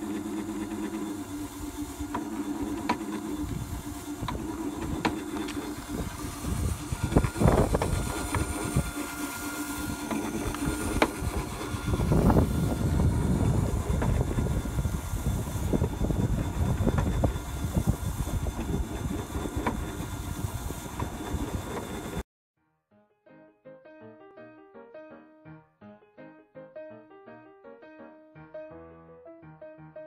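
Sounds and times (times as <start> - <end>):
meat slicer motor hum: 0.0 - 22.2.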